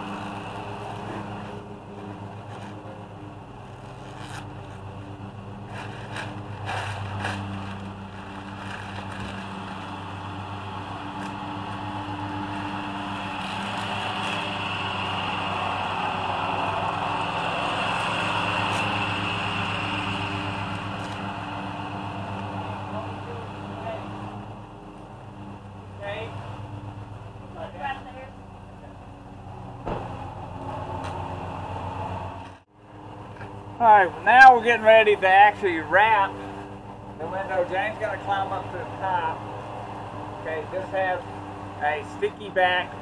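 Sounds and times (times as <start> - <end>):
steady motor hum: 0.0 - 43.0
plastic wrap rustling: 3.6 - 10.2.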